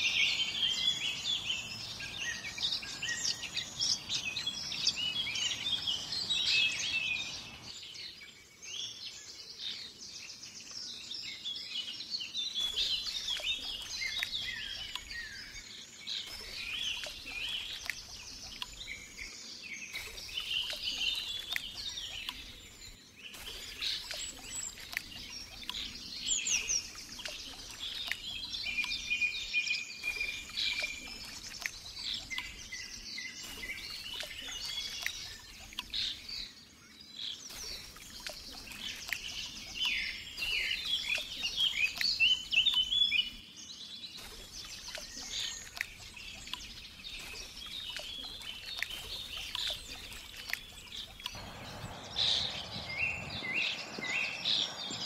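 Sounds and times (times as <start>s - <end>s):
songbirds chorus singing: 0.0s - 55.0s
faint hiss: 51.3s - 55.0s.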